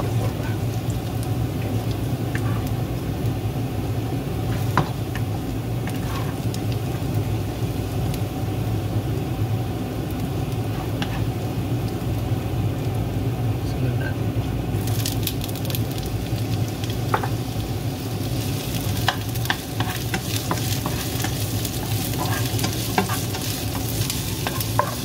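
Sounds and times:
garlic sizzling in oil: 0.0 - 13.6, 14.2 - 25.0
steady low hum: 0.0 - 25.0
spatula tapping and scraping pan: 10.8 - 11.2, 17.1 - 17.4, 18.9 - 25.0.

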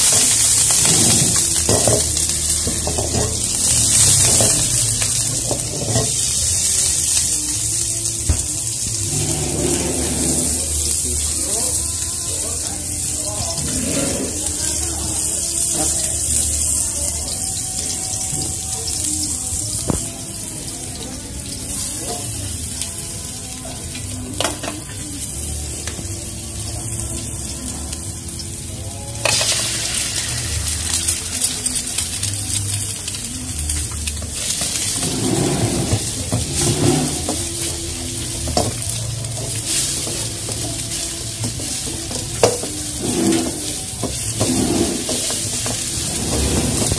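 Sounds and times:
spatula scraping wok: 0.0 - 7.0, 9.0 - 11.0, 13.5 - 14.8, 34.5 - 46.9
hot oil sizzling in a wok: 0.0 - 46.9.

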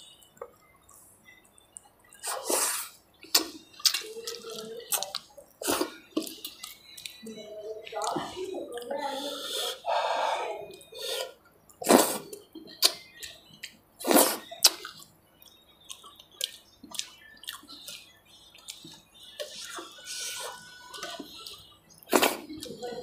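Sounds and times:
lip smacks and chewing: 0.2 - 7.2, 10.7 - 22.9
sticky squelches of fingers in food: 0.2 - 9.6.

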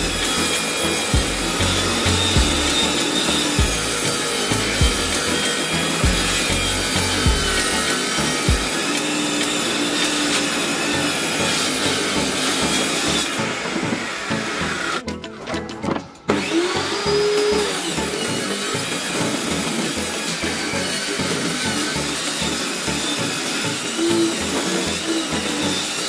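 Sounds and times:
power tool cutting wood: 0.0 - 15.1, 15.8 - 26.0
background music: 0.0 - 26.0.

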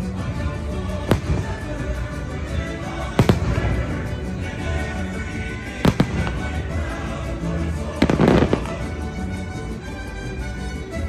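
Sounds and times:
orchestral show music: 0.0 - 11.0
fireworks bangs and crackling: 0.8 - 9.1.

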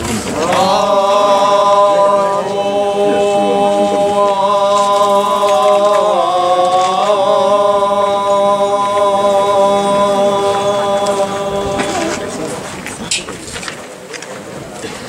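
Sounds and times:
long held chanting: 0.0 - 13.5.

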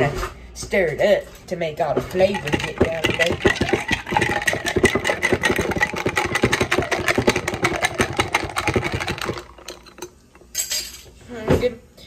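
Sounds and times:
ice cubes clinking in glass: 2.3 - 11.0.

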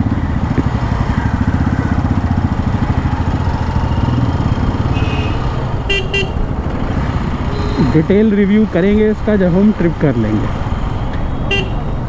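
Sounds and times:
motorcycle engine running: 0.0 - 9.7
horn beep: 4.9 - 6.4, 7.5 - 8.0.

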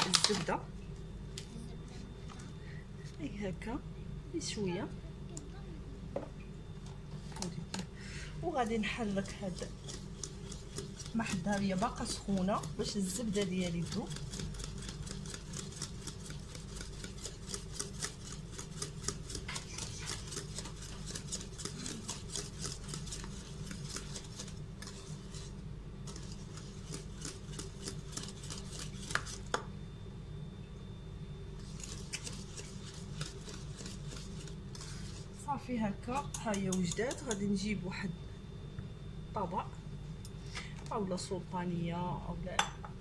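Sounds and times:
whisk clicking against metal pot: 9.1 - 25.0, 36.2 - 37.5.

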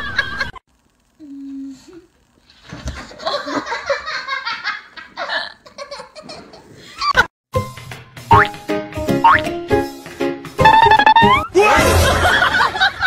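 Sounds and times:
music: 7.5 - 12.6
rising boing sound effect: 8.3 - 8.6, 9.2 - 9.5, 10.6 - 11.5.

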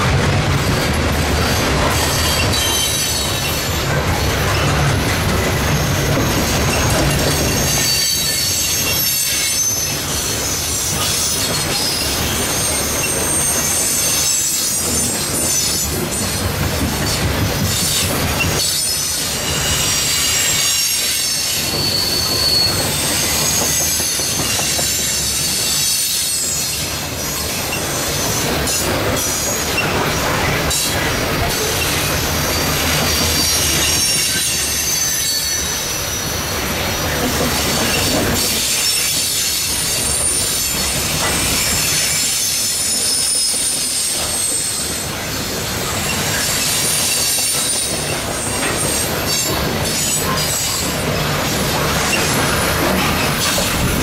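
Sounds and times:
train cars rumbling on rails: 0.0 - 54.0
train wheel squeal: 0.7 - 54.0.

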